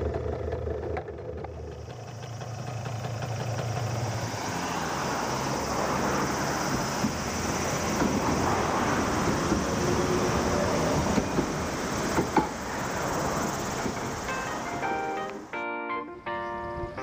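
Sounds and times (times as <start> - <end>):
tram passing on track: 0.0 - 17.0.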